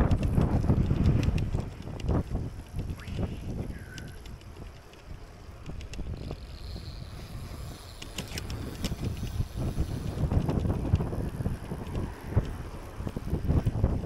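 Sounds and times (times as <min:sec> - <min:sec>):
bike clicks and rattles: 0:00.0 - 0:14.0
wind buffeting microphone: 0:00.0 - 0:14.0
tyres rumbling on road: 0:03.6 - 0:14.0.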